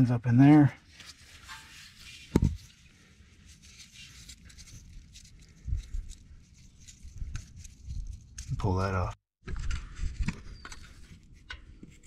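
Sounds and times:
hands rustling around wiring: 0.8 - 9.0.

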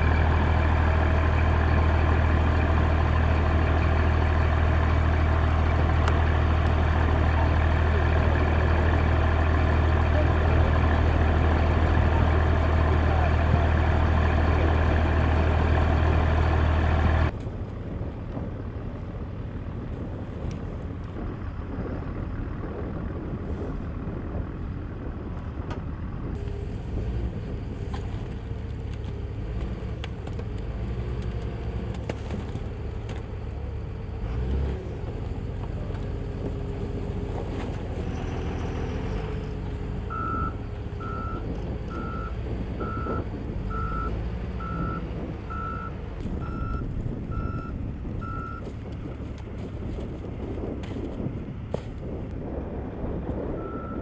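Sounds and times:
loud steady drone: 0.0 - 17.4
forklift engine running: 0.0 - 54.0
reversing alarm beeping: 40.1 - 48.6, 53.6 - 54.0.

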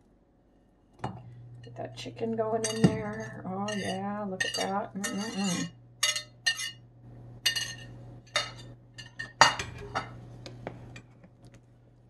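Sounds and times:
steady low hum: 0.0 - 12.0
utensil clinking against metal pot: 2.6 - 6.8, 7.5 - 10.1.

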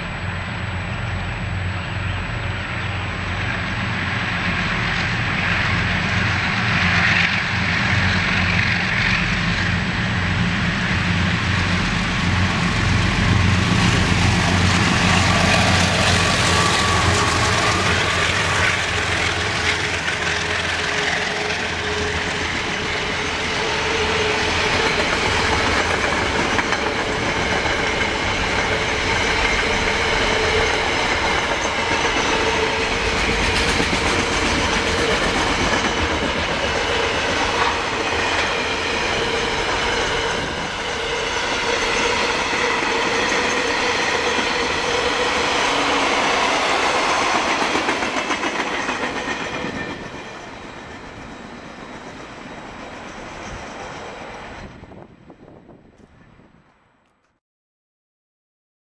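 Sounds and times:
train wheels rumbling on rail: 0.0 - 56.8
clickety-clack of wheels: 24.0 - 40.0, 46.4 - 50.5.

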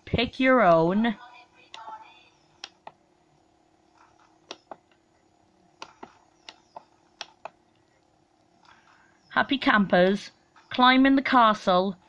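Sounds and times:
faint steady hum: 0.0 - 12.0
soft clicks: 2.6 - 3.0, 5.8 - 9.0.

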